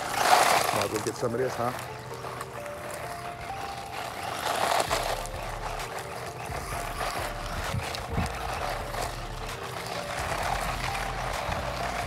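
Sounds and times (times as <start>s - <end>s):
rc truck motor and tyres: 0.0s - 12.0s.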